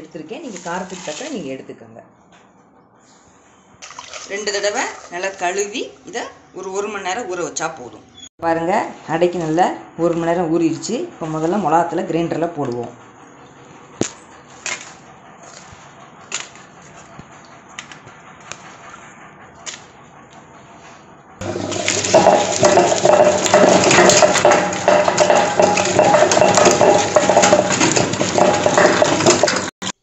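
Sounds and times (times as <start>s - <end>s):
wet grinder grinding: 21.4s - 30.0s.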